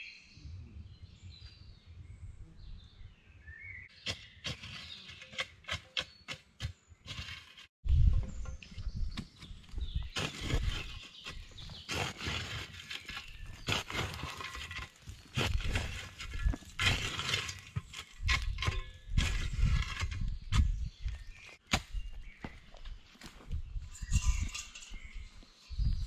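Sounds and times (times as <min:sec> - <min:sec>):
shovel scraping through charcoal: 0:04.4 - 0:06.3, 0:07.0 - 0:07.7, 0:10.1 - 0:20.7, 0:23.9 - 0:25.1.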